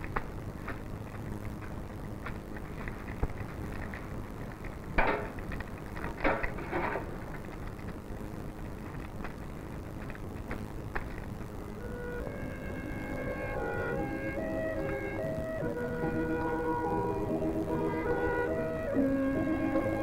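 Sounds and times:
film soundtrack hiss and hum: 0.0s - 20.0s.

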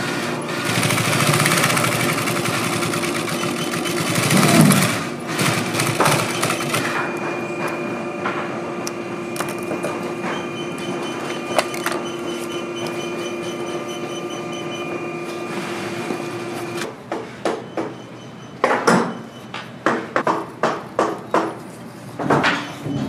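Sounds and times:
sewing machine motor humming: 0.6s - 7.0s, 10.7s - 16.9s.

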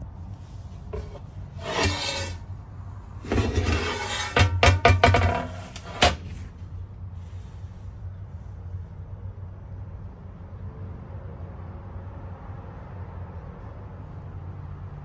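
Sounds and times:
griddle scraping on table: 0.9s - 2.5s, 3.2s - 6.6s
metallic clanks: 1.0s - 2.4s, 3.2s - 6.5s.

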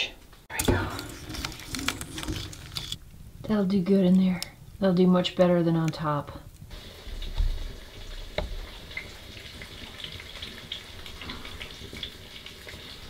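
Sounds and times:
fat popping and crackling: 0.5s - 4.6s, 5.3s - 10.8s.

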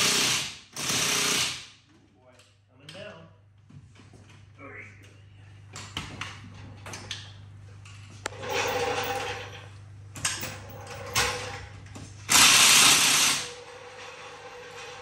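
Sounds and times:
impact wrench bursts: 0.0s - 1.8s, 12.3s - 13.6s
steady low hum: 2.1s - 12.4s.

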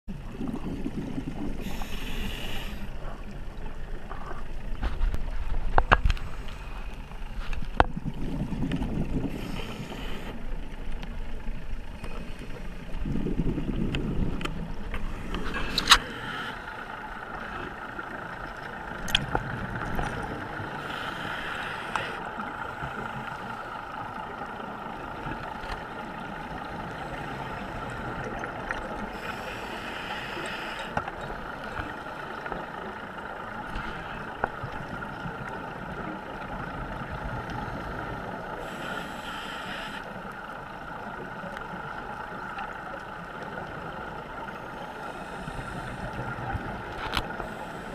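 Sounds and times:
diver's exhaled bubbles gushing: 0.1s - 2.8s, 7.8s - 10.3s, 12.8s - 16.4s
muffled underwater hum and whine: 0.1s - 47.9s.

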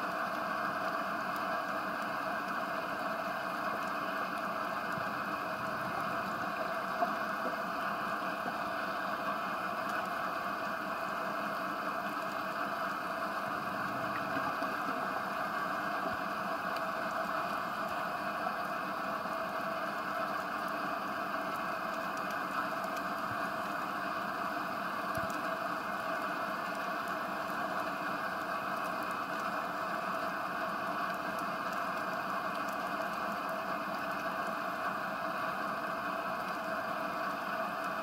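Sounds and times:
faint scattered clicks: 9.8s - 10.2s, 25.0s - 34.6s.

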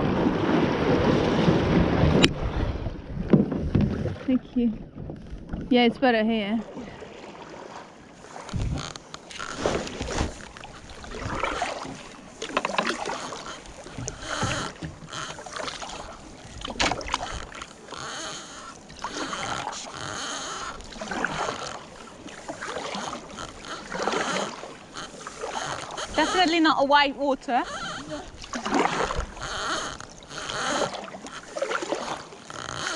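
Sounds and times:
kayak paddle strokes in water: 0.0s - 32.9s
water splashes and drips: 6.6s - 18.2s.

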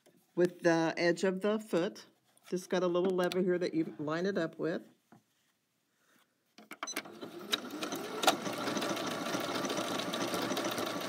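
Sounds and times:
sewing machine clicks: 6.6s - 11.0s
sewing machine stitching: 6.8s - 11.0s.

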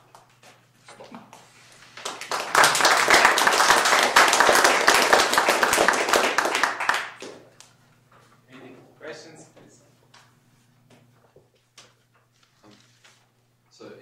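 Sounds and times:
audience applauding: 2.0s - 7.5s.

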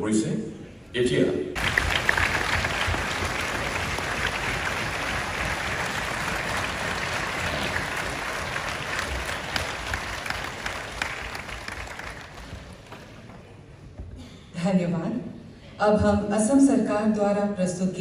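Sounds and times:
audience applauding: 1.6s - 13.3s.

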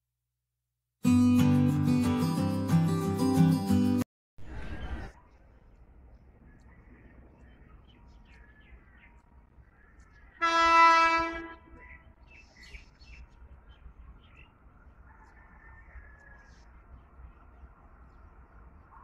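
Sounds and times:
train air horn blast: 10.4s - 11.8s.

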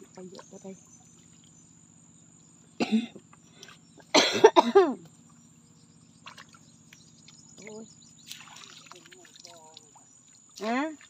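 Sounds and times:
person coughing: 2.8s - 3.2s, 4.1s - 5.0s.

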